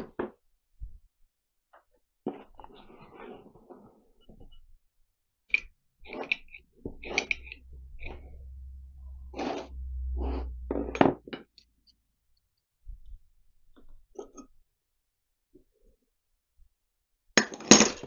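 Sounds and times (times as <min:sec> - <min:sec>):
low rumble: 0:06.7 - 0:12.2.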